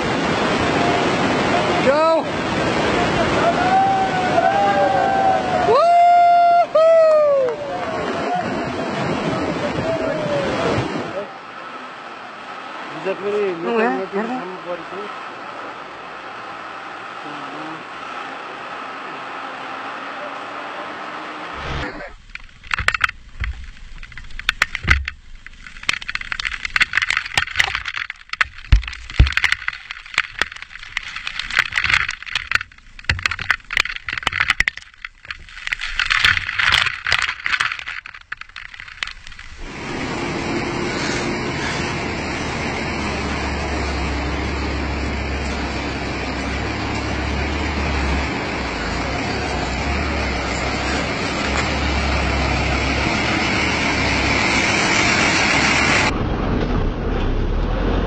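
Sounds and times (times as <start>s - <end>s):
rushing vehicle noise: 0.0s - 58.0s
water spattering on camera: 21.6s - 48.6s.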